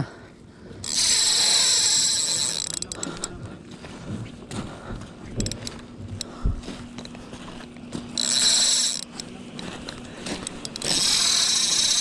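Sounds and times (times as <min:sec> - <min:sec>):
fishing reel drag buzzing: 0:00.8 - 0:03.3, 0:05.4 - 0:05.7, 0:08.1 - 0:09.3, 0:10.4 - 0:12.0
sharp reel clicks: 0:00.8 - 0:03.3, 0:05.4 - 0:05.7, 0:08.1 - 0:09.3, 0:10.4 - 0:12.0.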